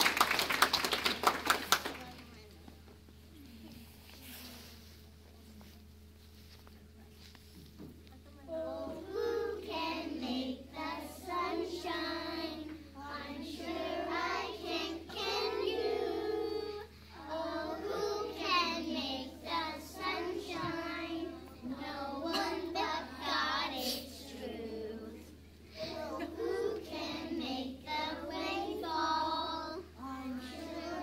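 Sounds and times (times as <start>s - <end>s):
children singing in unison: 8.6s - 21.3s, 25.8s - 31.0s.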